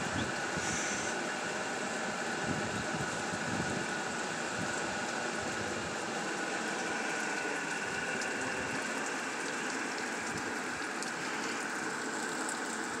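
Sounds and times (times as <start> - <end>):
rain on a truck: 0.0 - 13.0
raindrops ticking: 6.3 - 13.0.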